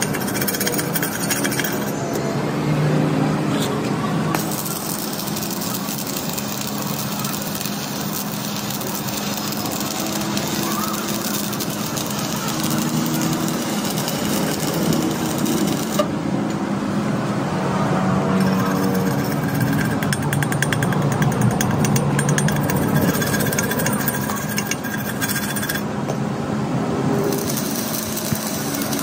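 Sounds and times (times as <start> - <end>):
power tool rattling hammering: 0.0 - 2.0, 4.3 - 16.1, 18.4 - 25.9, 27.2 - 29.0.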